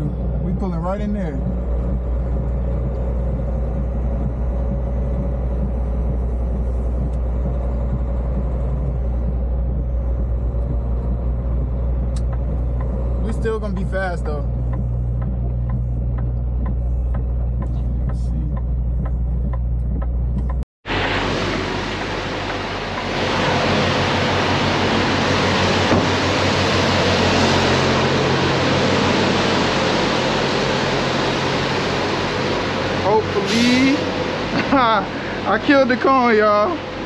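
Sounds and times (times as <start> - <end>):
faint regular ticking: 0.0 - 20.6
diesel engine humming: 0.0 - 37.0
steady rushing noise: 0.0 - 37.0.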